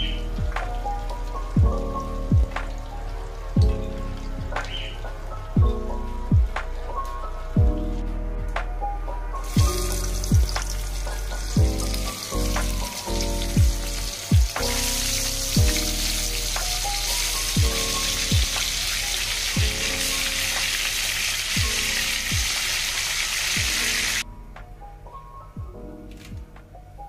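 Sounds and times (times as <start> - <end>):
music with bass drum beat: 0.0 - 1.0, 1.6 - 2.8, 4.4 - 6.8, 7.6 - 7.9, 9.5 - 22.8, 23.5 - 24.2
fish frying in hot oil: 9.4 - 24.2.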